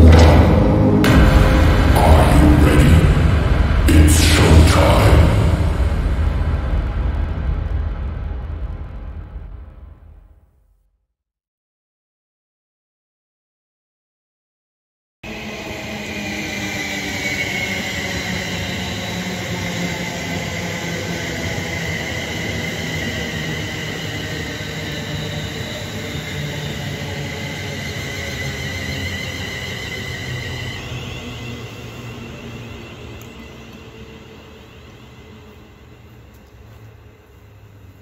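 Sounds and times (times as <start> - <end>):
high train whine: 0.0 - 10.5, 15.2 - 38.0
train wheels rumbling: 15.3 - 38.0.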